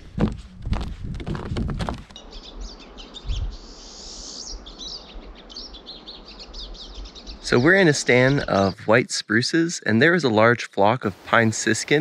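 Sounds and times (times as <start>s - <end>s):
footsteps: 0.0s - 2.2s
flock of birds chirping: 2.2s - 9.0s.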